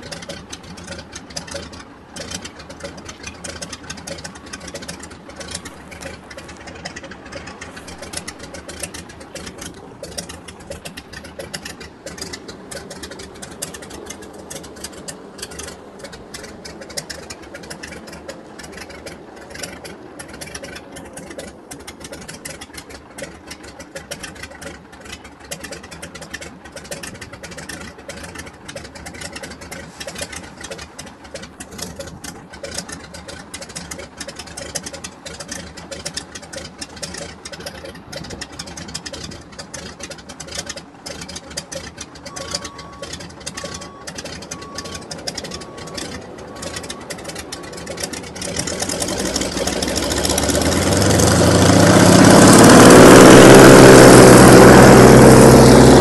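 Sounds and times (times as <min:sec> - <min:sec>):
radial aircraft engine idling: 0:00.0 - 0:56.0
faint beeper: 0:42.2 - 0:47.9.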